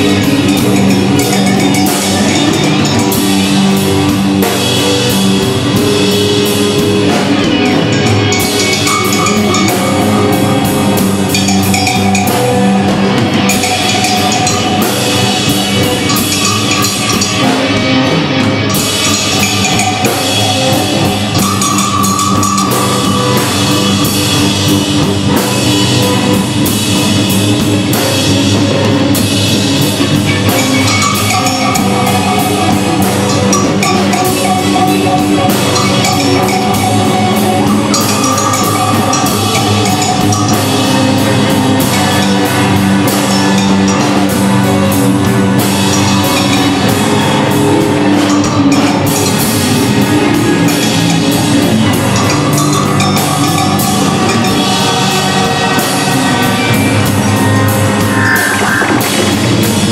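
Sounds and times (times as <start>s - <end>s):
bass and guitar notes: 0.0s - 59.9s
drum kit hits: 0.0s - 59.9s
electronic loops: 56.6s - 59.9s.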